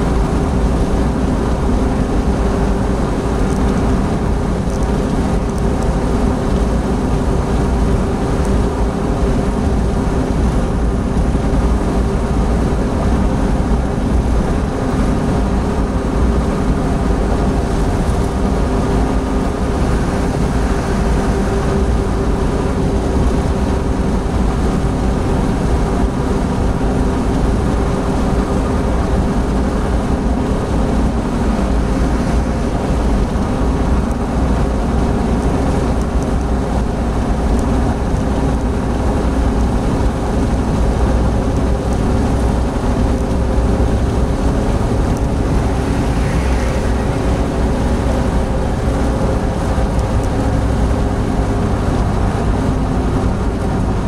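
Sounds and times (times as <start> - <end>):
car engine hum: 0.0 - 54.0
tyre and wind noise: 0.0 - 54.0.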